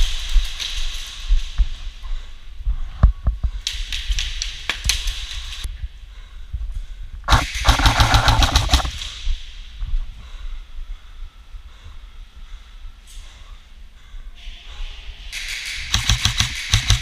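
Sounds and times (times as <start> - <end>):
gearbox whirring: 7.3 - 8.9
airsoft guns firing: 7.3 - 9.0, 15.4 - 17.0.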